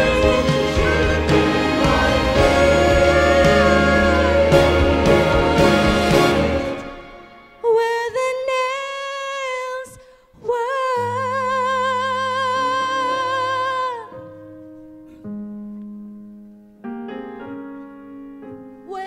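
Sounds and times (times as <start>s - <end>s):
woman singing with vibrato: 7.6s - 14.1s.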